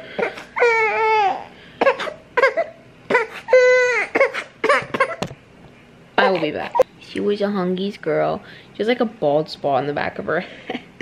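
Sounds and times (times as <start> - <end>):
baby crying: 0.2 - 1.5, 2.4 - 5.2.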